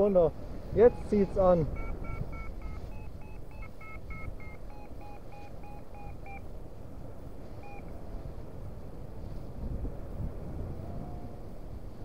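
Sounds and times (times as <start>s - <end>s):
wind on microphone: 0.0s - 12.0s
variometer beeping: 0.8s - 6.5s, 7.6s - 7.9s.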